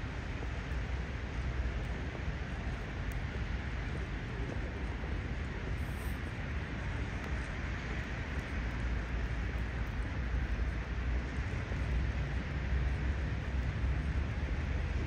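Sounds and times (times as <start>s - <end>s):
city street hiss: 0.0s - 15.0s.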